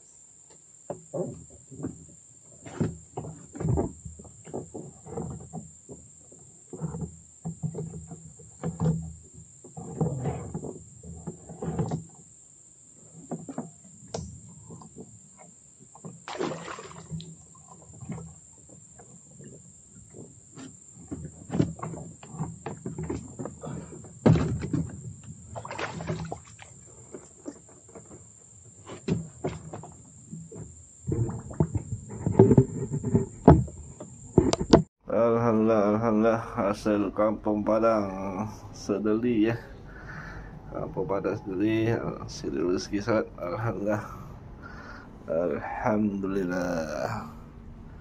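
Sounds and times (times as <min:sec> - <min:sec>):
knocks and bumps in metal boat: 0:13.0 - 0:34.9.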